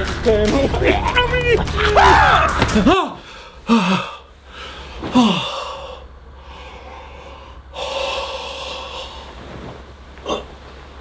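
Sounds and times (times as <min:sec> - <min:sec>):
man groaning: 0:01.9 - 0:04.2, 0:05.1 - 0:05.6
man gasping and breathing heavily: 0:03.1 - 0:09.3.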